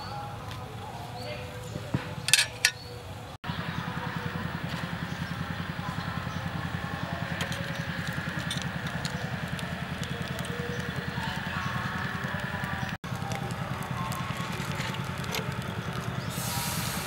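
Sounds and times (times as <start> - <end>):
small engine running: 3.4 - 17.0
faint crackles: 4.5 - 17.0.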